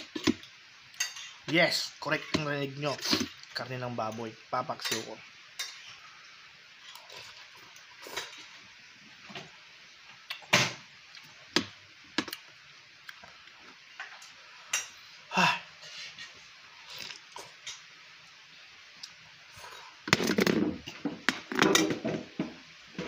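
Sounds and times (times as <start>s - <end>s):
slurping: 15.9s - 17.5s.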